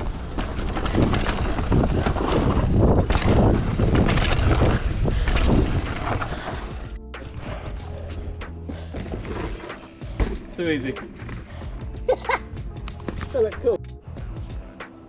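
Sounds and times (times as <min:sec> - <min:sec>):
wind buffeting microphone: 0:00.0 - 0:06.9
bike tyres rumbling on dirt: 0:00.0 - 0:11.9
bike rattling and knocking: 0:00.0 - 0:13.8.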